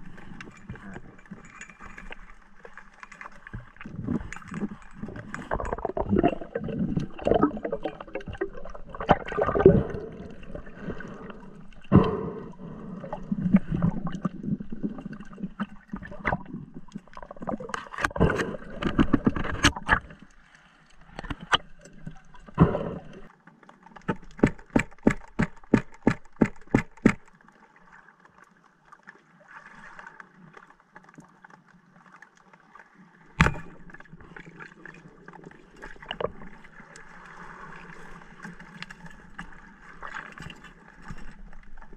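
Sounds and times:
underwater gear knocks and rustles: 0.0 - 9.4, 13.5 - 20.3, 23.2 - 27.4, 33.2 - 34.6, 38.0 - 41.9
sharp clicks underwater: 13.1 - 20.4, 21.0 - 27.4, 33.3 - 34.5.

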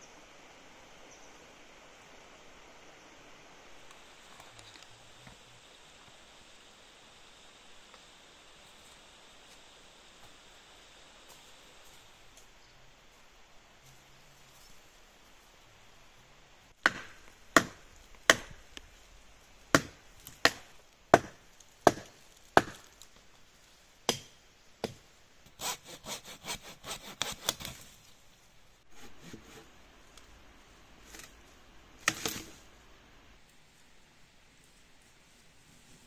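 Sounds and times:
sharp blows on wood: 24.1 - 27.8.

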